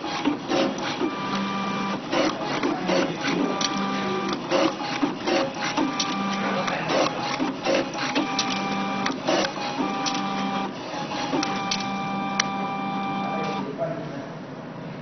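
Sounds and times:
paper machine clicks and slaps: 0.0s - 12.6s
motor whir: 0.0s - 13.6s.

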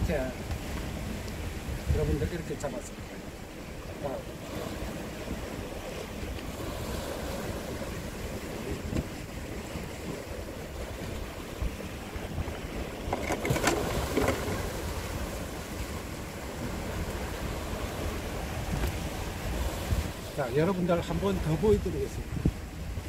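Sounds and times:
waves washing over rocks: 0.0s - 23.0s
wind buffeting microphone: 0.0s - 23.0s.

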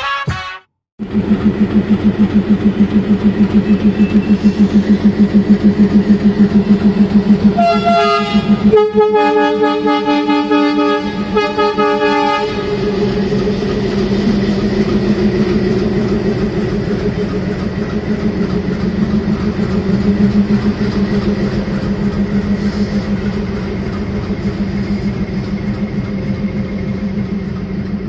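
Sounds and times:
locomotive horn blasts: 0.0s - 0.7s, 7.6s - 13.0s
train rumbling: 0.1s - 28.0s
locomotive engine throbbing: 1.0s - 28.0s.

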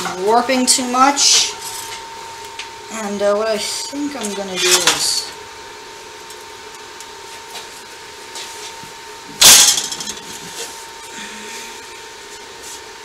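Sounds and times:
faint steady hum: 0.0s - 13.0s
metal clank on steel workpiece: 9.4s - 10.3s.

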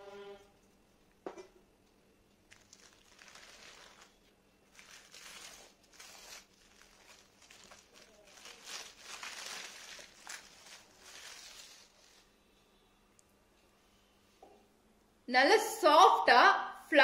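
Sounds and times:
plastic and paper crinkling: 2.5s - 12.4s.

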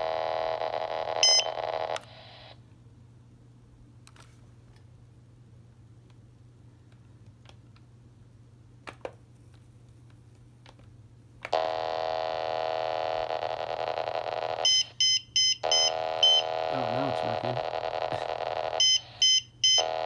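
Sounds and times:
loud steady buzzing tone: 0.0s - 2.6s, 11.5s - 20.0s.

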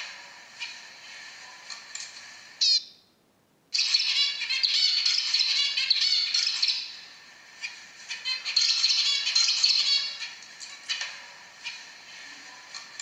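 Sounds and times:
finch singing chattering song: 2.6s - 3.0s, 3.8s - 7.0s, 8.1s - 10.4s
finches chirping: 2.6s - 3.0s, 3.7s - 11.0s.

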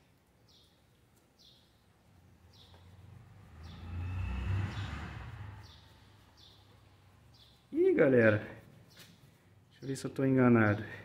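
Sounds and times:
bird chirping: 0.4s - 10.0s
vehicle passing by: 2.4s - 7.4s.

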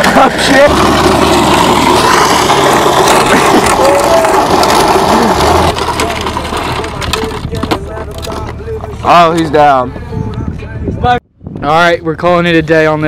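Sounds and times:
plastic wheels grinding on asphalt: 0.0s - 9.8s.

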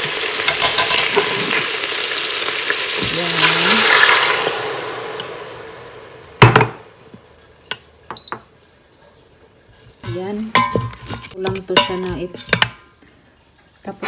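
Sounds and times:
pork sizzling: 0.0s - 14.0s
wooden spoon stirring: 9.7s - 13.2s.

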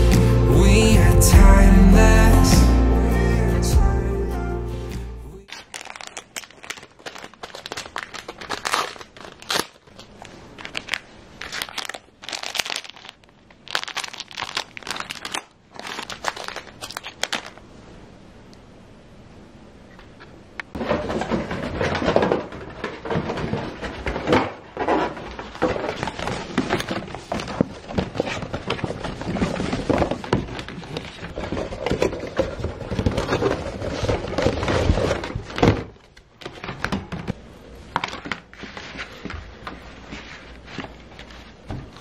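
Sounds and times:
cardboard boxes thunking and scraping: 20.8s - 35.9s.

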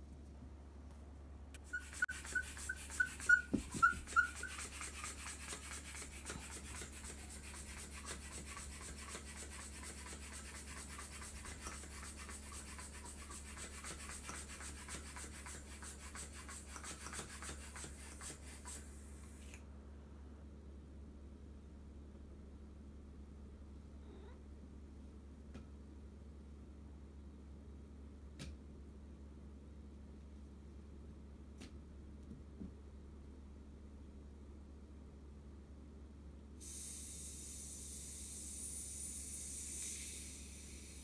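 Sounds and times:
short squeaks: 1.6s - 5.0s
air pump hissing: 1.6s - 19.6s, 36.6s - 41.0s.

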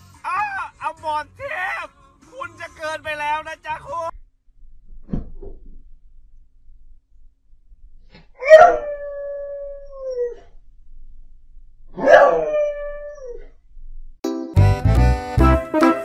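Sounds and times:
dog howling: 8.4s - 10.5s, 12.0s - 13.5s.

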